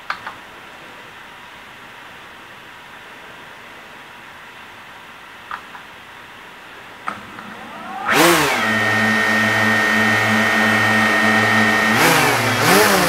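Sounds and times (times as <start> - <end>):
drone motors whining: 7.1 - 13.0.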